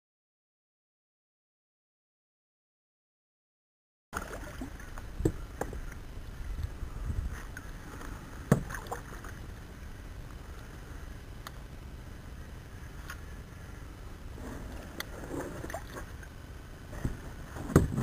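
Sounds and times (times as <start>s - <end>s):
steady low rumble: 4.2s - 18.0s
knocks on kayak: 17.6s - 18.0s.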